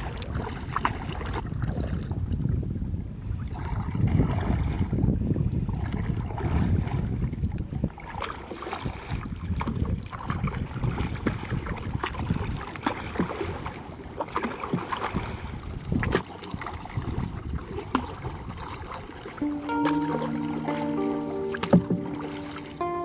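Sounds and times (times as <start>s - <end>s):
paddle strokes with splashes: 0.0s - 2.4s, 3.3s - 23.0s
wind rumble on microphone: 0.0s - 13.9s, 15.0s - 19.0s
water drips: 19.4s - 23.0s.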